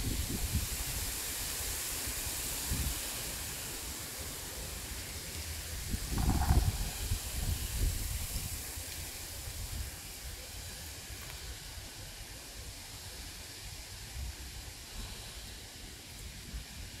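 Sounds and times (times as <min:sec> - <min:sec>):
low rumbling puffs: 0:05.8 - 0:09.9.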